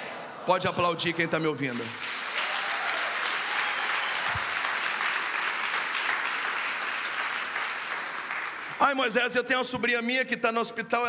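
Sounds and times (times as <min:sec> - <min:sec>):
group clapping: 0:01.7 - 0:09.4.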